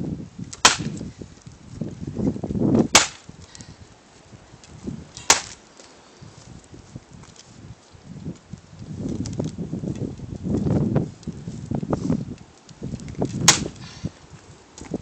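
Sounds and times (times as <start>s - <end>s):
axe chopping wood: 0.5s - 1.0s, 2.9s - 3.3s, 5.2s - 5.6s, 13.3s - 13.8s.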